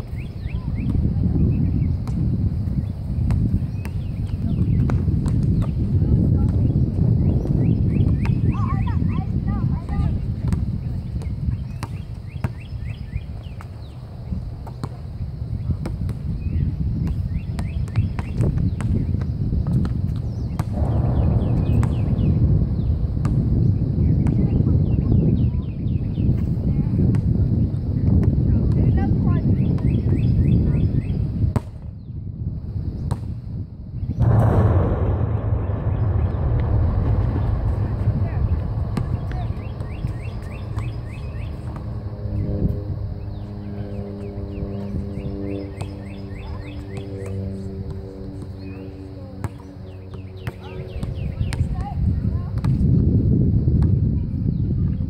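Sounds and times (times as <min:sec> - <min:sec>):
wind rumble on microphone: 0:00.0 - 0:55.0
basketball bouncing on hard court: 0:03.3 - 0:05.8, 0:11.2 - 0:12.6, 0:52.6 - 0:52.8
basketball banging on hard surface: 0:20.6 - 0:24.6, 0:36.2 - 0:43.4.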